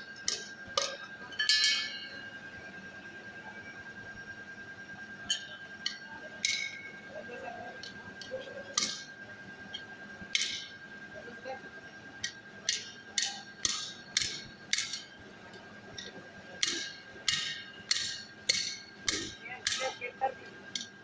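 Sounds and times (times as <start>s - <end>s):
steady high-pitched hum: 0.0s - 21.0s
hammer striking metal anvil: 8.8s - 9.1s, 10.3s - 10.7s, 12.7s - 15.1s, 16.6s - 20.0s.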